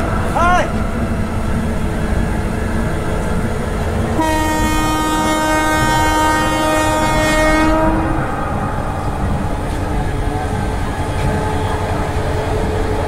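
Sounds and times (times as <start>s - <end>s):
train rumbling: 0.0s - 13.0s
locomotive air horn blast: 4.2s - 8.4s.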